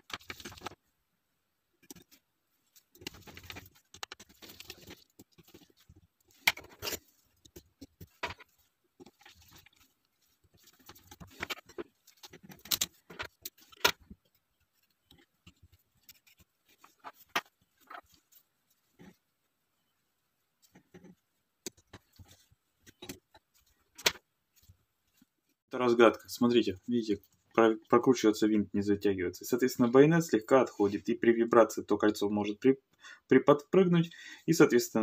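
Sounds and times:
handling rustle: 0.0s - 0.8s, 1.8s - 25.6s.

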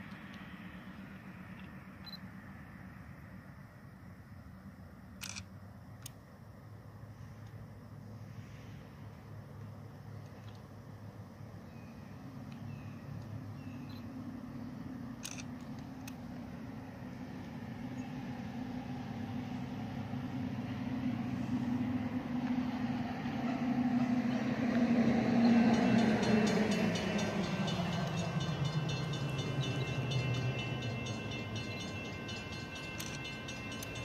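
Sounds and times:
diesel locomotive drone: 0.0s - 34.0s.

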